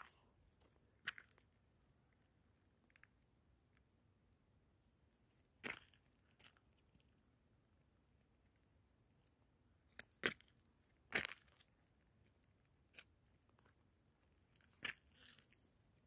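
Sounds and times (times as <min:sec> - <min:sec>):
sharp crunches and scrapes: 0:14.6 - 0:15.6.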